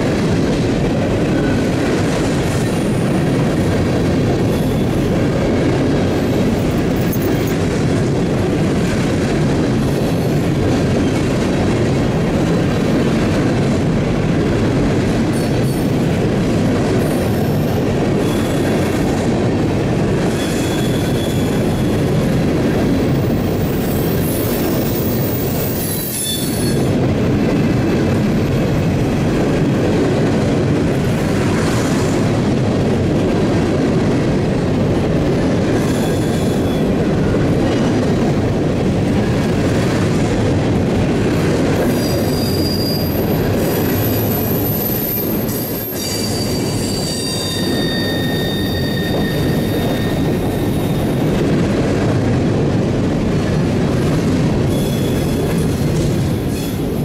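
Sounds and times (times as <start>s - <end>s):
steel wheels rumbling on rail: 0.0s - 57.0s
high-pitched wheel squeals: 20.4s - 21.9s, 23.6s - 26.9s, 41.9s - 51.1s, 54.7s - 55.5s.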